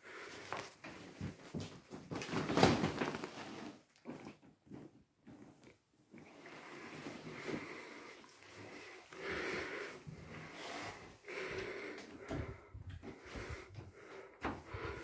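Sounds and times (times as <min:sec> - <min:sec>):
mattress rustling and bumping: 0:01.0 - 0:04.9.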